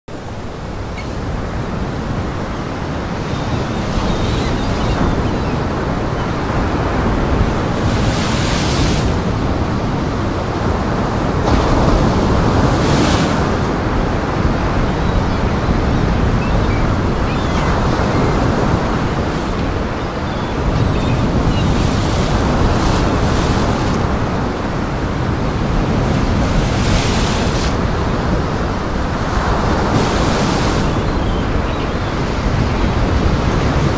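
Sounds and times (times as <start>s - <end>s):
wind buffeting microphone: 0.2s - 33.9s
surf breaking against rocks: 11.3s - 14.6s.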